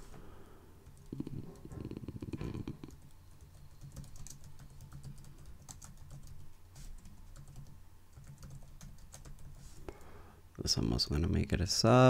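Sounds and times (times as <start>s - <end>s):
low steady hum: 0.0s - 12.0s
keyboard typing clicks: 2.8s - 6.4s.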